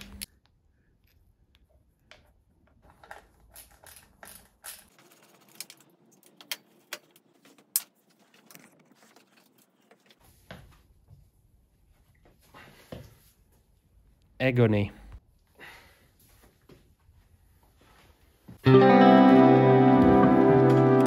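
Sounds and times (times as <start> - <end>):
metal parts tapping: 2.7 - 7.2.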